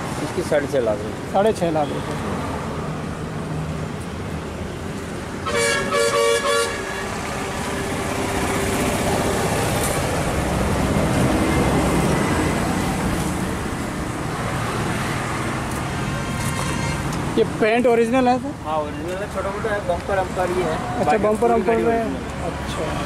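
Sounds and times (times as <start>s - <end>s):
road traffic: 0.0s - 23.0s
vehicle passing: 0.0s - 23.0s
vehicle horn short toots: 5.4s - 6.9s.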